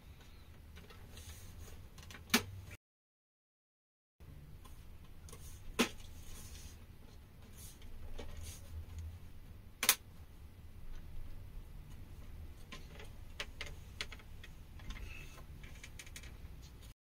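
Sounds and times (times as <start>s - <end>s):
sharp plastic clicks: 9.8s - 10.0s.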